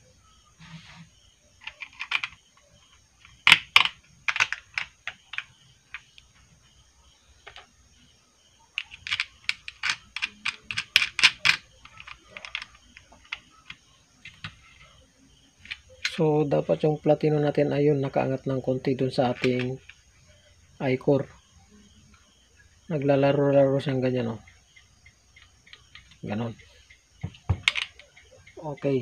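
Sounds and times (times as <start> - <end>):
small metal clicks and taps: 26.9 - 28.2.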